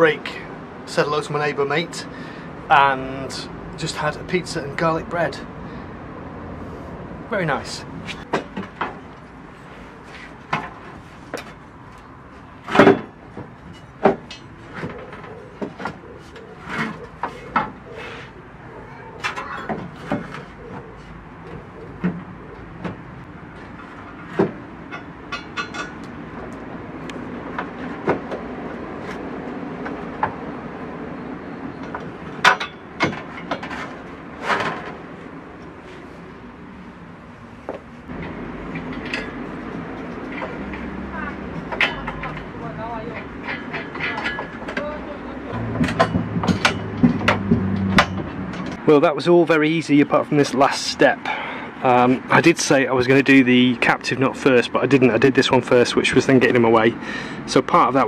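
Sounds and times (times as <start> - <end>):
metal knocks and scrapes: 12.5 - 18.4, 31.9 - 35.3, 38.1 - 42.6, 43.2 - 48.8.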